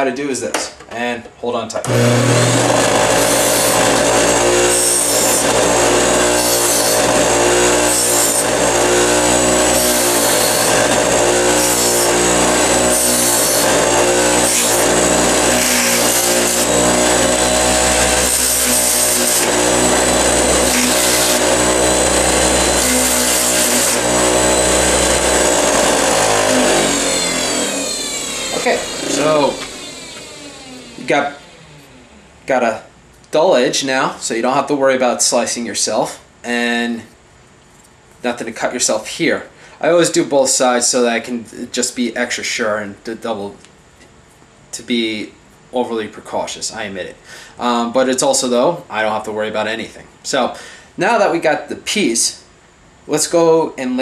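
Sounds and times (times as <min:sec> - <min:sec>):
bench grinder motor hum: 0:01.9 - 0:32.3
grinder winding down: 0:01.9 - 0:32.5
harsh scratching of steel on wire brush: 0:02.3 - 0:29.7.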